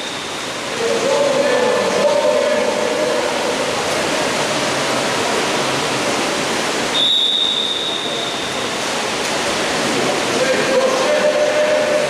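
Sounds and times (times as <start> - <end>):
crowd noise: 0.0 - 12.0
water splashing: 0.0 - 12.0
high whistle blast: 6.9 - 8.7.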